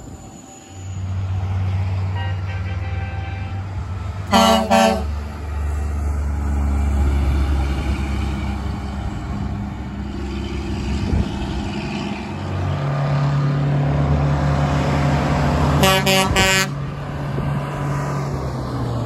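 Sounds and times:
vehicle engine rumble: 0.0s - 19.0s
air horn blasts: 2.2s - 3.7s, 4.3s - 5.2s, 15.8s - 16.8s.

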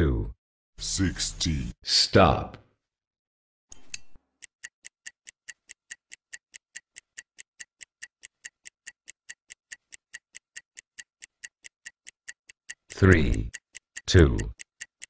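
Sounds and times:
stopwatch ticking: 4.3s - 15.0s.

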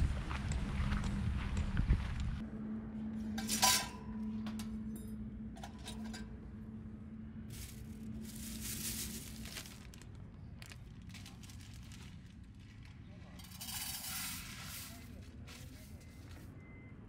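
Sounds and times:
plastic bag crinkling: 7.5s - 16.4s.

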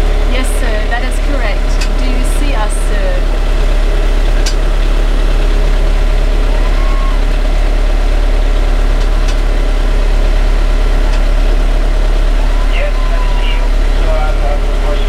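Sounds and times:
boat engine droning: 0.0s - 15.0s.

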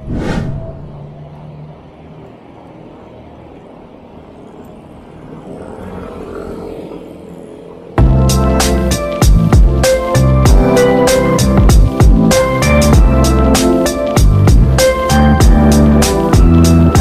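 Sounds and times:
vehicle passing: 0.0s - 8.0s
road traffic: 0.0s - 17.0s.

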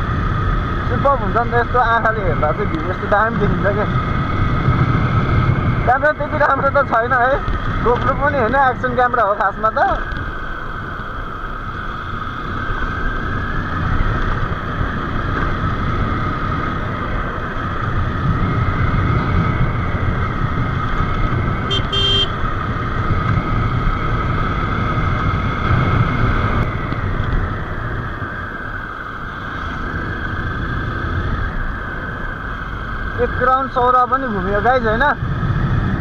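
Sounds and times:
motorcycle engine running: 0.0s - 36.0s
road and wind noise: 0.0s - 36.0s
motorcycle horn toot: 21.6s - 22.5s.

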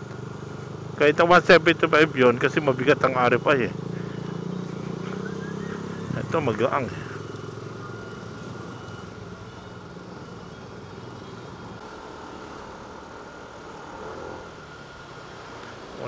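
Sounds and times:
road and traffic noise: 0.0s - 16.0s
scooter engine running: 0.0s - 16.0s.

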